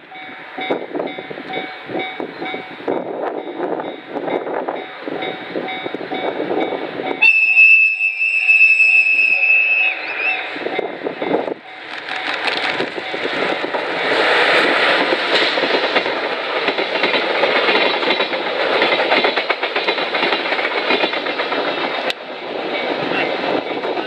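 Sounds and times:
diesel locomotive passing: 0.0s - 24.0s
train wheels clacking on rail joints: 10.6s - 24.0s.

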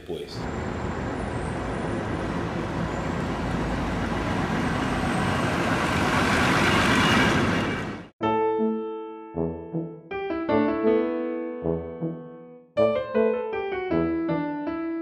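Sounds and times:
bus driving past: 0.4s - 8.1s.

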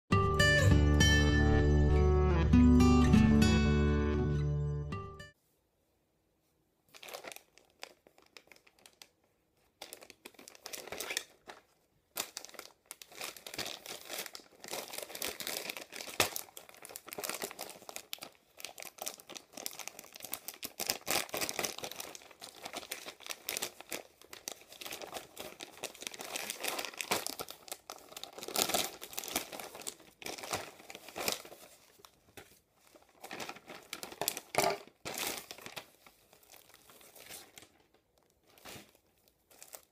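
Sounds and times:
plastic mailer crinkling: 6.9s - 39.9s
scissors cutting plastic: 10.7s - 11.4s.

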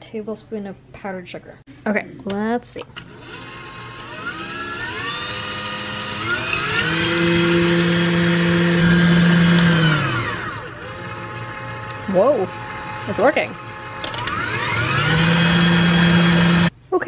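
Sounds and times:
stand mixer motor whine: 3.1s - 16.7s.

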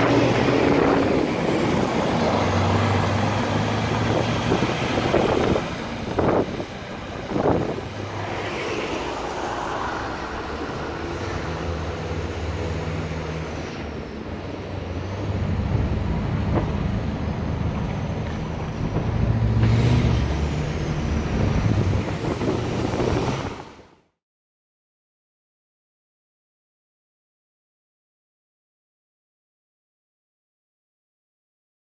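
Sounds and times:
crane diesel engine running: 0.0s - 8.2s, 8.9s - 23.1s.

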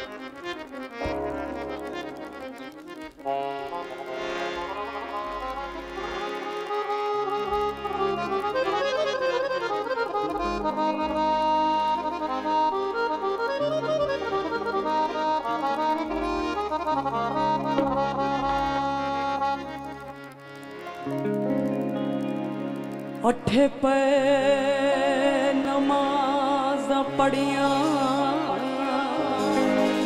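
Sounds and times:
reedy accordion-like melody: 0.0s - 23.4s, 24.6s - 30.0s
low bass notes: 10.1s - 23.3s.

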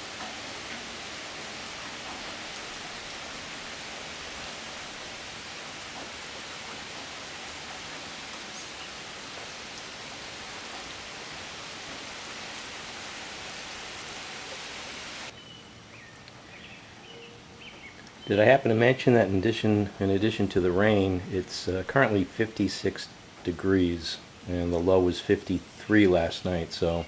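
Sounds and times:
heavy rain on leaves: 0.0s - 17.9s.

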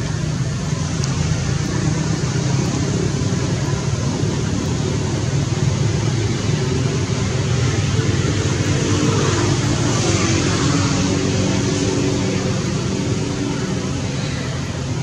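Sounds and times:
low rumble with hiss: 0.0s - 15.0s.

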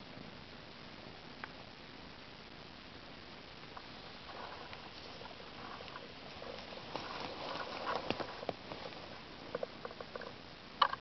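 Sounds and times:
hands rustling through dry leaves: 3.7s - 10.1s.

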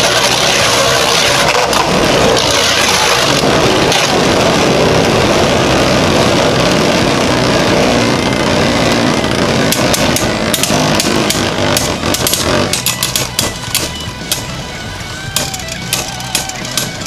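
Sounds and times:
spinning tops whirring and scraping: 0.0s - 17.0s
spinning tops clacking together: 9.7s - 17.0s.

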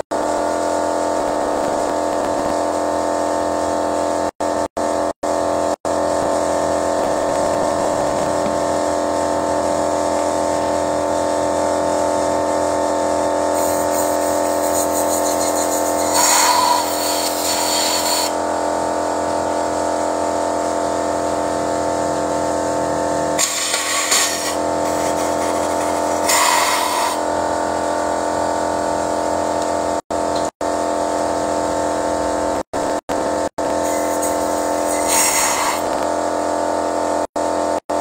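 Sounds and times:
steady mechanical hum: 0.1s - 38.0s
short bursts of hiss: 13.6s - 18.3s, 33.9s - 35.8s.

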